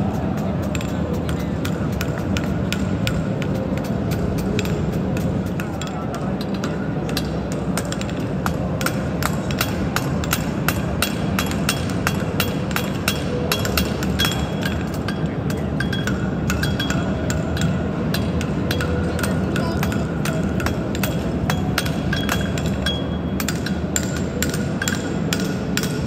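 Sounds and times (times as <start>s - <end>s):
crowded hall noise: 0.0s - 26.0s
hammer striking on anvil: 1.6s - 26.0s.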